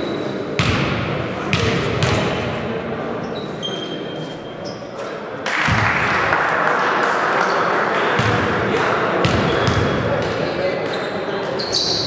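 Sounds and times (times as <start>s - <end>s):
crowd noise: 0.0s - 12.0s
basketball bouncing on gym floor: 0.6s - 2.3s, 8.2s - 8.5s, 9.2s - 10.3s.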